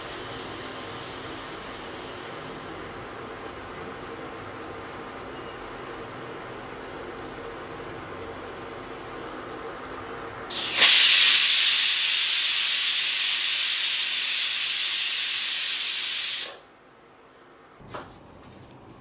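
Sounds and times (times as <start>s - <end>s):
pressure cooker whistling: 10.5s - 16.6s.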